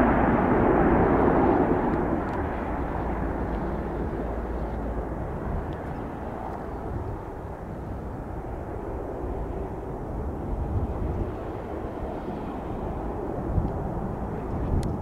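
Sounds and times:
aircraft engine rumble: 0.0 - 15.0.

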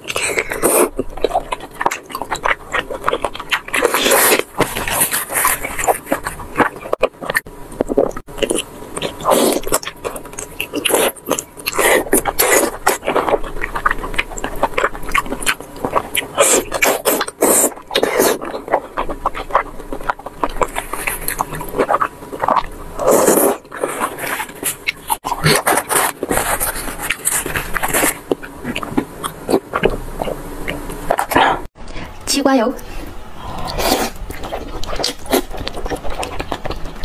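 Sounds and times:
wet chewing and mouth clicks: 0.0 - 32.2, 33.4 - 37.0
loud slurp: 32.9 - 37.0.

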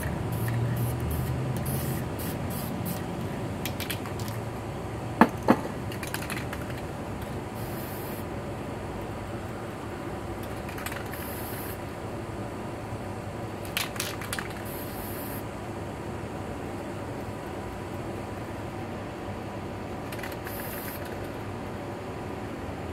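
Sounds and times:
spray can hissing: 0.0 - 4.4, 7.6 - 8.2, 10.9 - 11.8, 13.7 - 15.4, 20.2 - 21.1.

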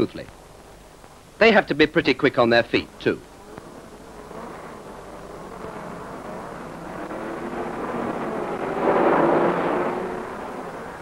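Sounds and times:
racing car engine passing: 3.4 - 11.0.

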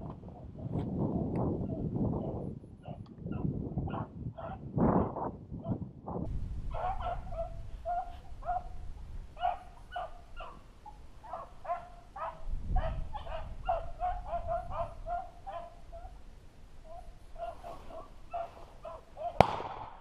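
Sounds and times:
hounds baying: 6.7 - 19.4.

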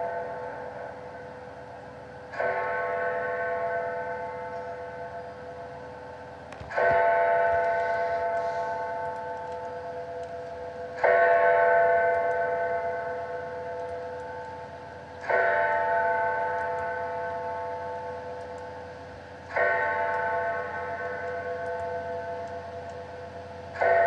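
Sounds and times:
large bell tolling: 0.0 - 18.9, 19.5 - 24.0.

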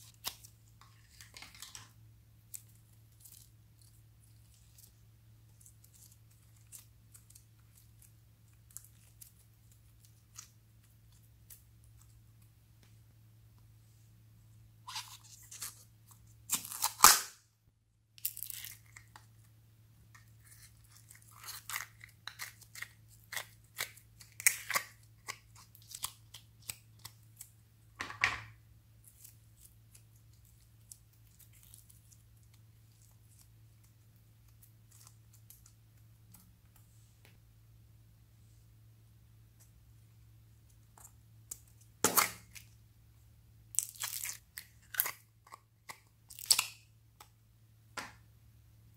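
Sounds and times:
plastic lid tearing and peeling: 16.5 - 17.3.

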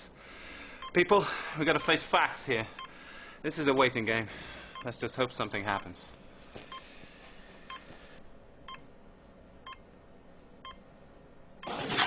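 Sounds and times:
hospital monitor beeps: 0.8 - 2.1, 4.7 - 5.0.

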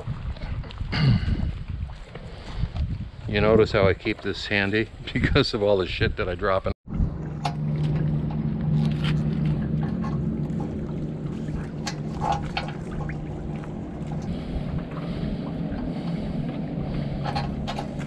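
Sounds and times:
wind on microphone: 0.0 - 18.0
low steady hum: 6.9 - 18.0.

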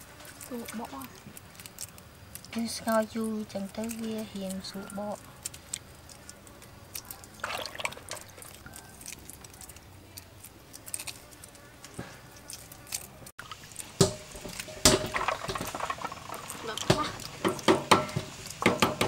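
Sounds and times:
eggshell crackling: 0.0 - 19.0
eggs splashing into water: 7.2 - 8.6, 13.4 - 18.7.

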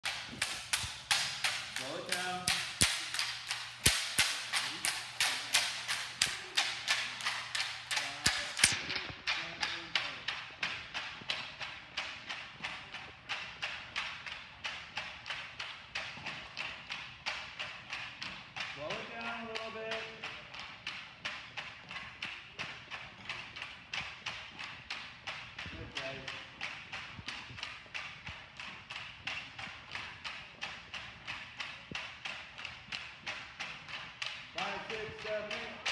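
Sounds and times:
bamboo poles striking wood: 0.0 - 9.2
bamboo poles knocking rhythmically: 0.0 - 35.9.

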